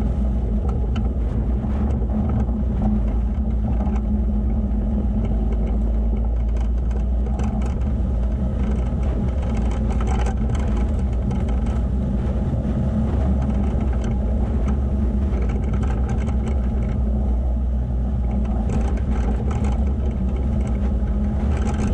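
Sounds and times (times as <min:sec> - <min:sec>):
vehicle engine running: 0:00.0 - 0:21.9
tyre rumble: 0:18.1 - 0:21.9.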